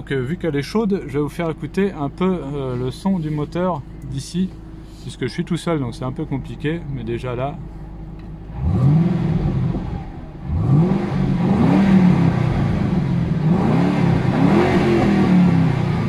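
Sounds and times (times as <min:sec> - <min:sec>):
car engine revving: 0:07.7 - 0:16.0.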